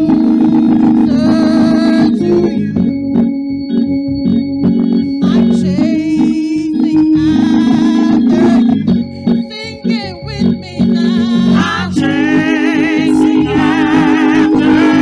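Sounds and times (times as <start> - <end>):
organ sustained chords: 0.0 - 15.0
group of singers: 6.9 - 8.9, 11.0 - 15.0.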